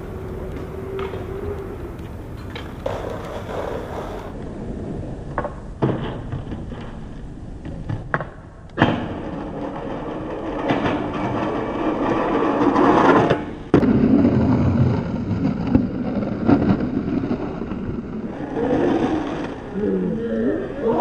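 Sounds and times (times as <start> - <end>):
skateboard clacks: 0.0 - 4.4, 5.2 - 19.7
skateboard grinding steel rail: 0.0 - 7.2, 7.8 - 19.8
skateboard rolling: 0.0 - 21.0.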